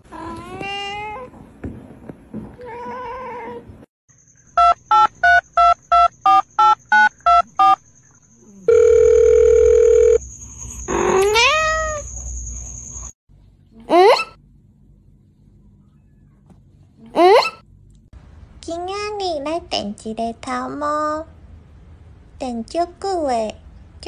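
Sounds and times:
telephone keypad beeps: 4.6s - 7.8s
steady telephone tone: 8.7s - 10.2s
cat meowing: 11.1s - 12.0s.

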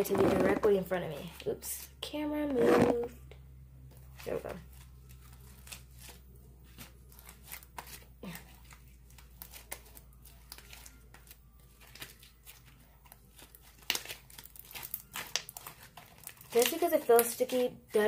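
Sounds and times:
slime squelching in hands: 4.0s - 17.7s.

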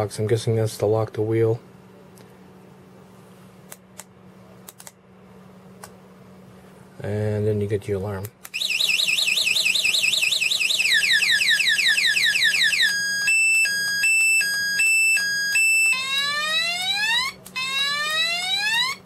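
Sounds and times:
alarm siren cycling tones: 8.5s - 19.0s.

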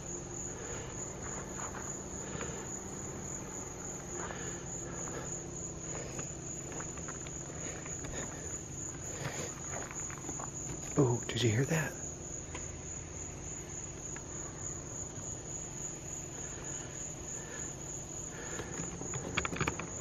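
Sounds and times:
crickets trilling: 0.0s - 20.0s
low steady hum: 0.0s - 20.0s
faint rustles: 0.2s - 11.1s.

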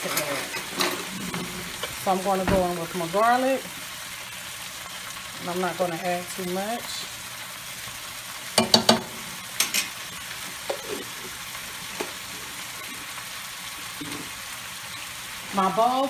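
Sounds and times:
steaks sizzling in a pan: 0.0s - 16.0s.

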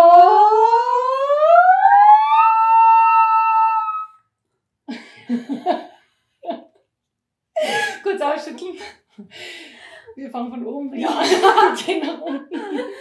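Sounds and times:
laughter: 4.9s - 6.6s, 7.6s - 8.2s, 11.0s - 13.0s.

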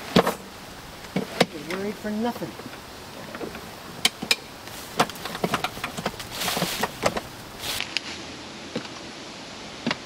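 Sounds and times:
rustling: 0.0s - 8.2s
sharp clicks and knocks: 1.0s - 8.0s.

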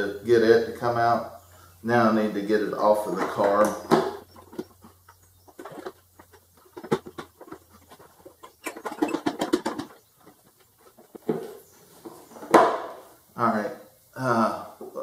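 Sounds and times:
rubber hose rubbing and clicking: 3.1s - 12.6s.

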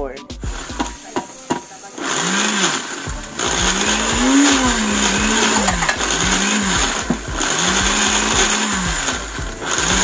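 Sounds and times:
electric blender pulsing: 0.4s - 10.0s.

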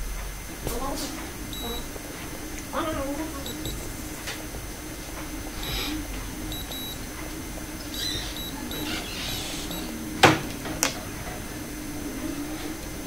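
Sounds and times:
faint steady hum: 0.0s - 13.0s
faint high chirps: 1.5s - 1.9s, 3.4s - 3.9s, 5.6s - 7.0s, 7.8s - 10.0s.

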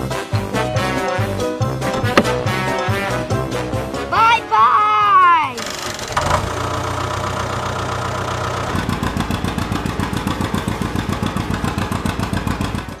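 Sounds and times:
tractor engine chugging: 5.6s - 13.0s.

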